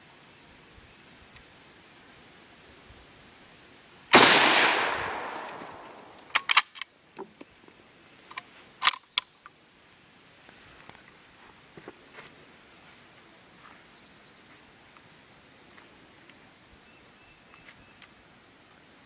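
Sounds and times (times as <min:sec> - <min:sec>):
rifle shot echoing: 0:04.1 - 0:06.5
metallic rifle bolt clicks: 0:04.4 - 0:06.9, 0:08.3 - 0:09.3.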